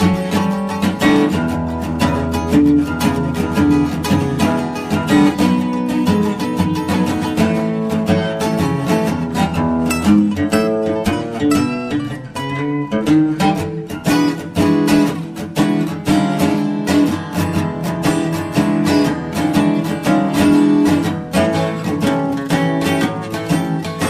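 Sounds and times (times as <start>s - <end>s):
acoustic guitar: 0.0s - 24.0s.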